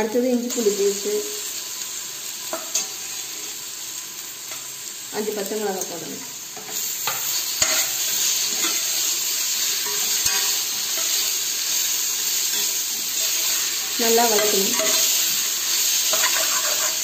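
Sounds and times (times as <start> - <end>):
onions sizzling in hot oil: 0.0 - 17.0
spatula stirring and scraping: 6.6 - 17.0.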